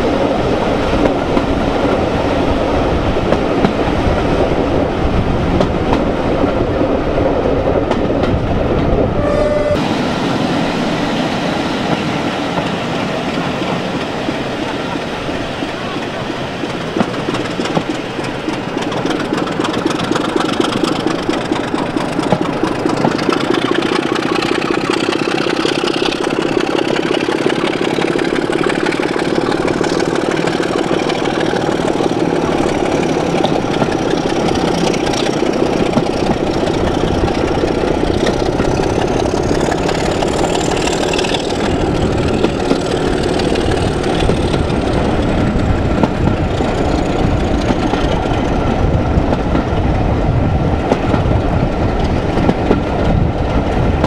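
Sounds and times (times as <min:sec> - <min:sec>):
diesel locomotive engine running: 0:00.0 - 0:54.0
wheel and rail noise: 0:00.0 - 0:54.0
faint high whistle: 0:09.2 - 0:09.8.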